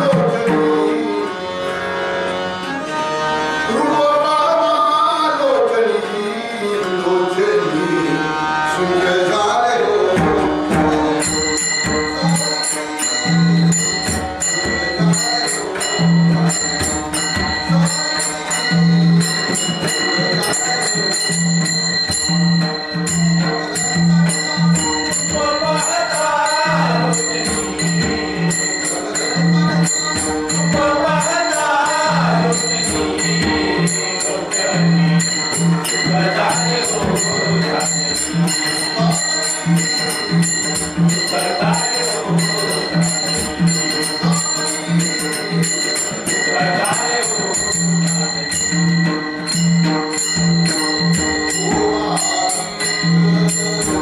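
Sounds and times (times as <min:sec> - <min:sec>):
tabla beat: 0:00.0 - 0:05.9, 0:06.6 - 0:54.0
harmonium melody: 0:00.0 - 0:54.0
brass hand cymbals ringing: 0:11.0 - 0:54.0.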